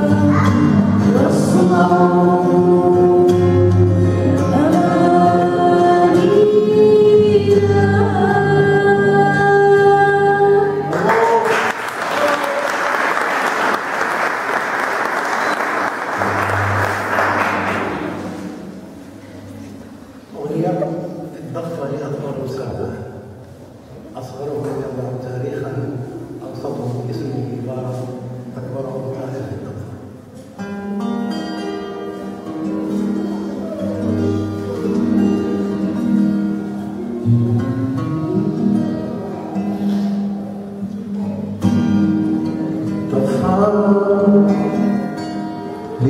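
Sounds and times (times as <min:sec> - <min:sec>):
acoustic guitar playing: 0:00.0 - 0:11.9, 0:13.4 - 0:46.0
audience applauding: 0:10.9 - 0:18.6.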